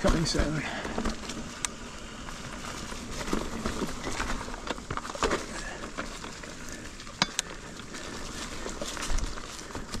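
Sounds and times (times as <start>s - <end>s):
bike knocking and rattling: 0.0s - 10.0s
bike tyres rolling over dirt: 0.0s - 10.0s.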